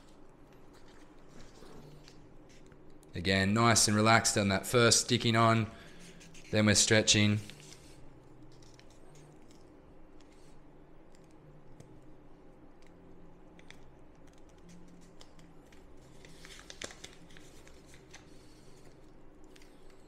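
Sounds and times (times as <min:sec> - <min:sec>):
tape crinkling and rustling: 0:13.6 - 0:20.0
backing paper peeling crackles: 0:14.6 - 0:19.0.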